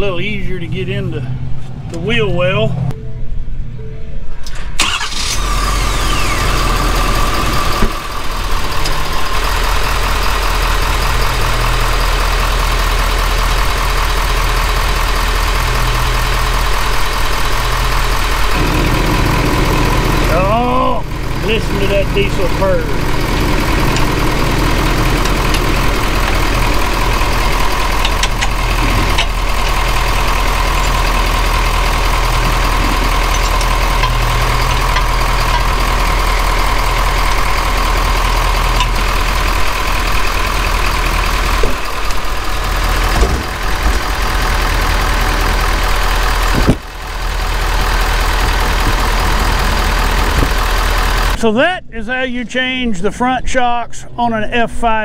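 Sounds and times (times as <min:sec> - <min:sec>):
diesel engine idling: 0:04.4 - 0:51.4.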